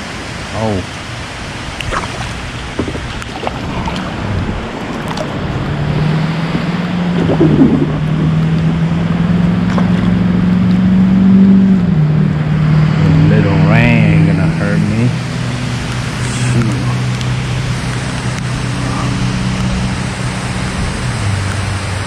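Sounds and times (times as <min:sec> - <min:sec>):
rain hiss: 0:00.0 - 0:06.2, 0:14.8 - 0:22.0.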